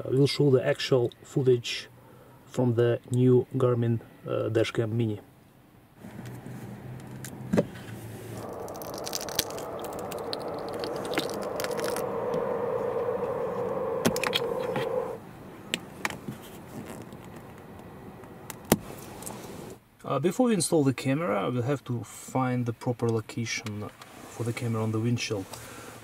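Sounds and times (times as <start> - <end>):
small clicks and rubbing: 16.0 - 17.9.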